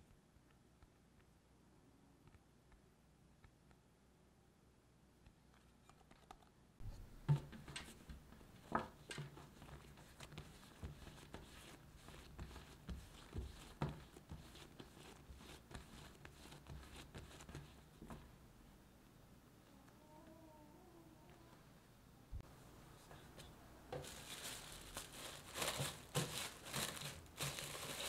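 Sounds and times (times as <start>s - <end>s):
hands kneading dough on countertop: 6.9s - 18.3s.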